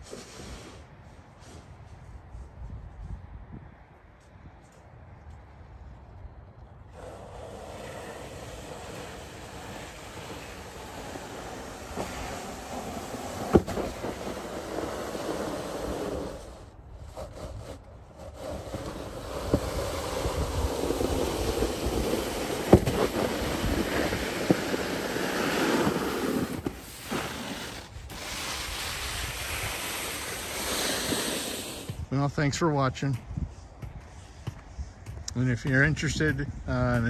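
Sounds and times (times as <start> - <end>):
snow pusher scraping concrete: 0.0 - 1.7, 7.0 - 32.0.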